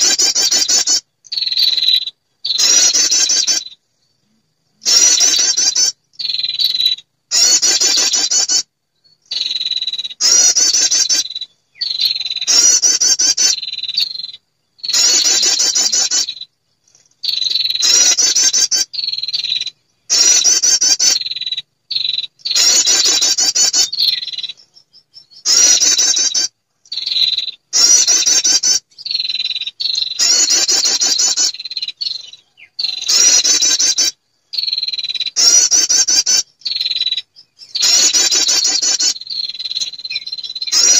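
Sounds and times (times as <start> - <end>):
songbird rapid high trills: 4.8 - 8.7, 14.9 - 16.4, 17.3 - 40.9.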